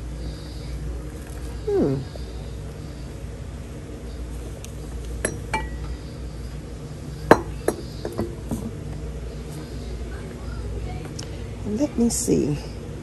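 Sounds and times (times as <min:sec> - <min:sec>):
low background hum: 0:00.0 - 0:13.0
glass jars clinking: 0:05.2 - 0:05.8.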